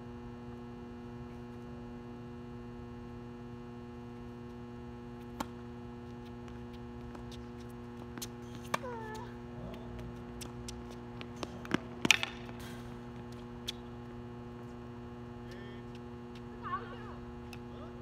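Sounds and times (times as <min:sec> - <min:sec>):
mains hum: 0:00.0 - 0:18.0
tennis ball pops: 0:11.4 - 0:12.7.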